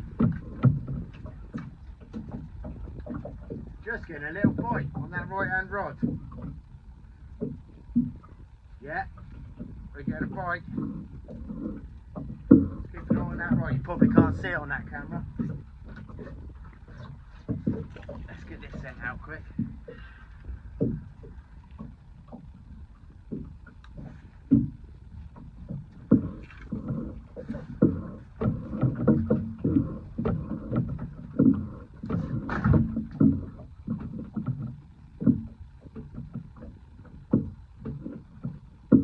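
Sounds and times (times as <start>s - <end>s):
water slapping boat hull: 0.0s - 39.0s
gear banging on board: 9.6s - 19.8s, 23.4s - 39.0s.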